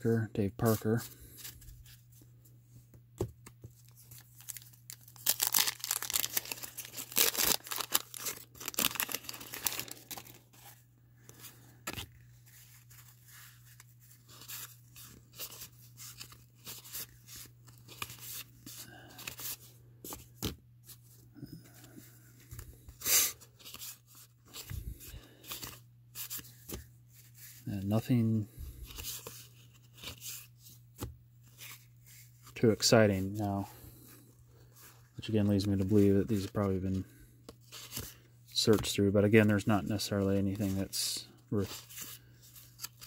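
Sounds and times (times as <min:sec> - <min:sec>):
cards rustling and flicking: 0:00.6 - 0:27.6, 0:28.8 - 0:34.1, 0:34.7 - 0:43.0
wax paper wrapper tearing: 0:04.2 - 0:10.4.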